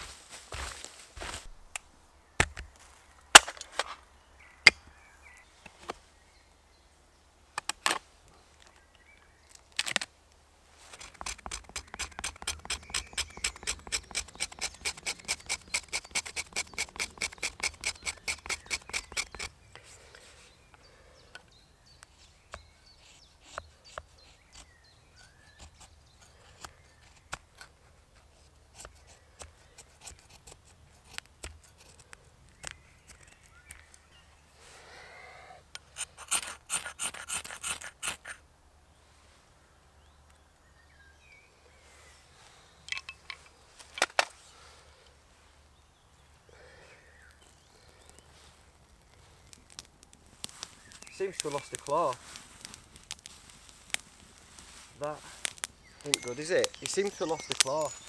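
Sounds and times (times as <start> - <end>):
knife scraping bark: 10.8 - 20.4, 22.2 - 33.8, 35.8 - 38.4, 50.4 - 58.0.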